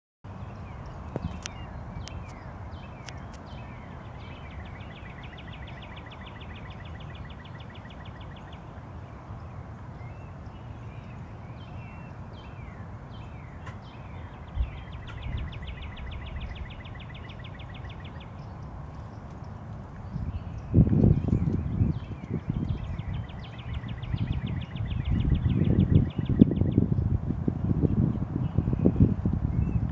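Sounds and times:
songbird trilling: 0:00.5 - 0:08.7, 0:10.0 - 0:27.0
steady low rumble: 0:10.5 - 0:29.9.

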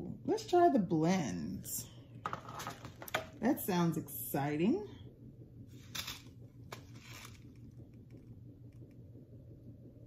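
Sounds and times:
paper packet rustling: 0:05.8 - 0:07.6.

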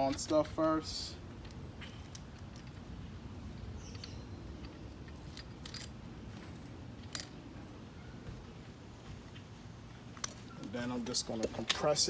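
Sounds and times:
metallic clicks of nut and washers: 0:01.4 - 0:07.5.

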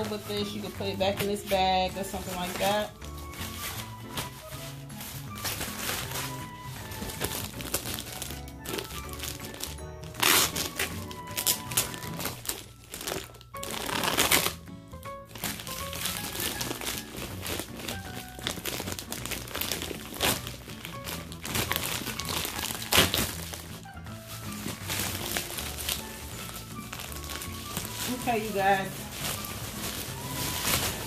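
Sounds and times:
background music: 0:00.0 - 0:31.0
plastic wrapping crinkling: 0:00.0 - 0:31.0.

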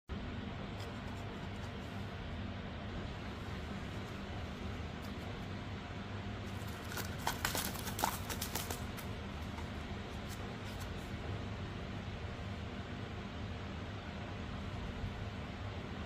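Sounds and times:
wrapped sweets clicking and crinkling: 0:06.5 - 0:10.4.

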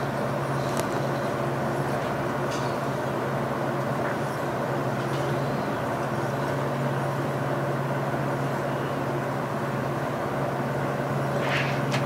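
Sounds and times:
low machine hum: 0:00.0 - 0:12.0
paper rustle: 0:11.3 - 0:12.0.

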